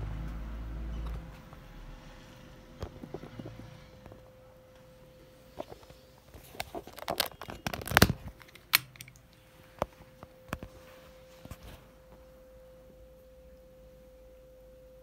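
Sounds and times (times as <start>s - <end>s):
faint steady hum: 0.0s - 15.0s
handling noise on camera: 2.7s - 12.3s.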